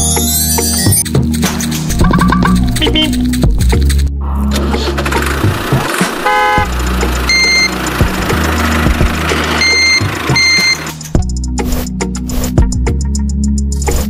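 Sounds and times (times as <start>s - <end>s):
tractor engine droning: 4.2s - 11.2s
horn honk: 6.1s - 7.8s
short high beeps: 9.6s - 10.9s.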